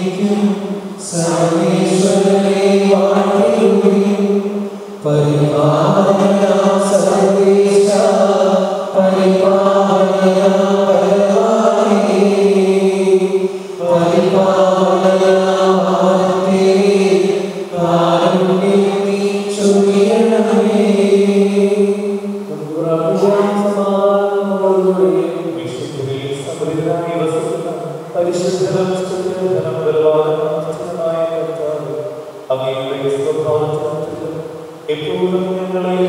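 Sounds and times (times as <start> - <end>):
slow liturgical chant: 0.0 - 36.0.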